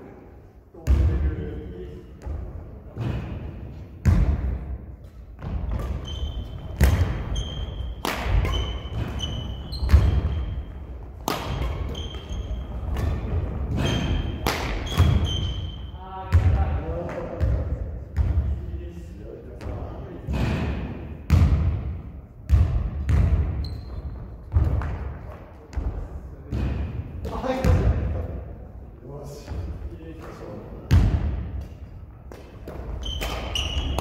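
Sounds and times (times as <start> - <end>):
rackets hitting shuttlecock: 4.0 - 15.7, 30.2 - 34.0
sneaker squeaks on floor: 5.4 - 16.0, 23.5 - 24.7, 32.6 - 34.0.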